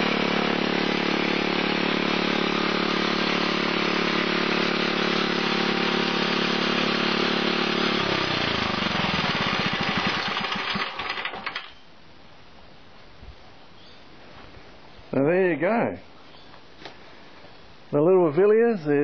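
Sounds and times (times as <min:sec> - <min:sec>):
stationary petrol engine running: 0:00.0 - 0:11.7.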